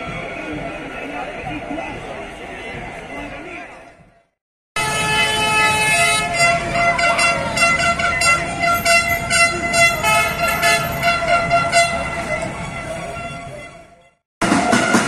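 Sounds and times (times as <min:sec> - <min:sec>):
protest crowd noise: 0:00.0 - 0:15.0
horns blaring: 0:04.8 - 0:15.0.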